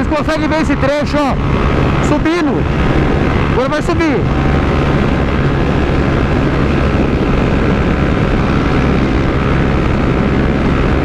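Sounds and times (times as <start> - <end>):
motorcycle engine at high revs: 0.0 - 11.0
wind rush: 0.0 - 11.0.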